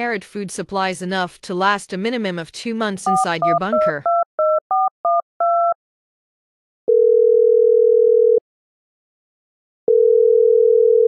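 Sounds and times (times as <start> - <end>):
touch-tone keypad beeps: 3.1 - 5.8
telephone ringing tone: 6.9 - 8.4, 9.9 - 11.0.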